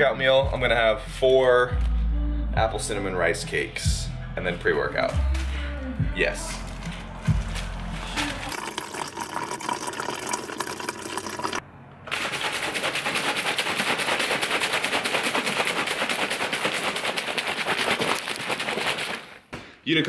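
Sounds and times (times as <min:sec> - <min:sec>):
liquid sloshing in shaker bottle: 0:06.8 - 0:19.4.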